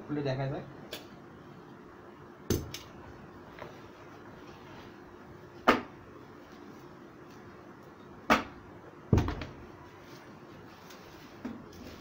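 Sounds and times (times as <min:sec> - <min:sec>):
knocks on cardboard parcel: 0:09.1 - 0:09.6.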